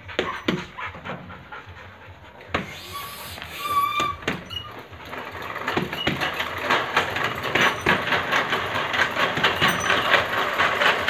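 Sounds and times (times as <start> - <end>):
treadmill belt clattering and squeaking: 0.0 - 11.0
footfalls on treadmill: 4.0 - 11.0.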